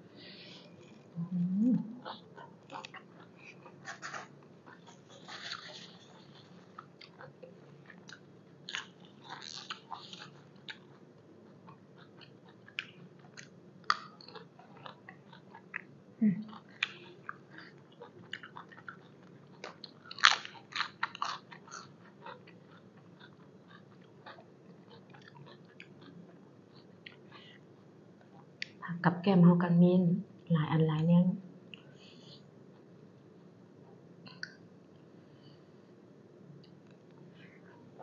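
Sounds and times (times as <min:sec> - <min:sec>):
low hum from eater: 0:00.0 - 0:38.0
chewing crunchy food: 0:00.2 - 0:01.2, 0:01.9 - 0:28.8.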